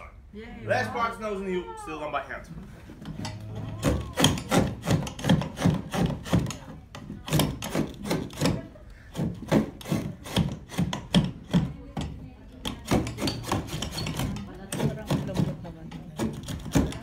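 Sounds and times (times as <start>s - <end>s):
knife scraping wood: 3.0s - 11.7s, 12.7s - 17.0s.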